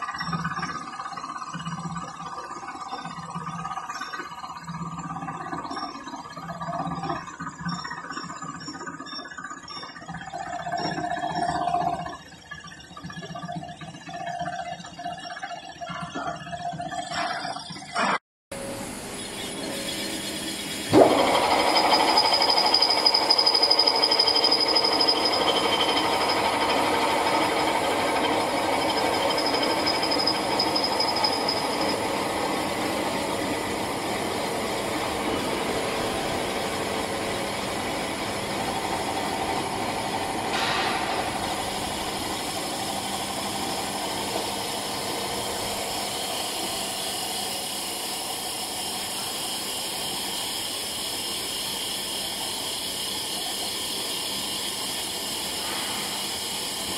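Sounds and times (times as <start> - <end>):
high whine: 18.6 - 49.3
extruder motor running: 18.6 - 51.1.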